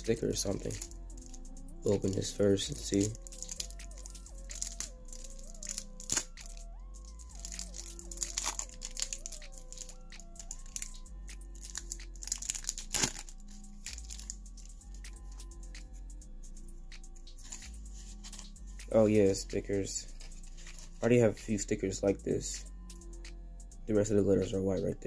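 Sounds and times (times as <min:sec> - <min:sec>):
plastic packaging crinkling: 0:00.0 - 0:06.6, 0:07.2 - 0:15.4
background music with melody and bass: 0:00.0 - 0:25.0.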